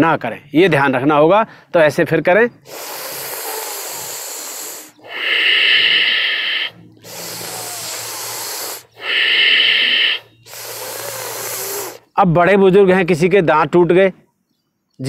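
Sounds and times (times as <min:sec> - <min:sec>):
exhales through the nose: 0:02.6 - 0:12.1
hissing inhales through teeth: 0:02.6 - 0:12.1.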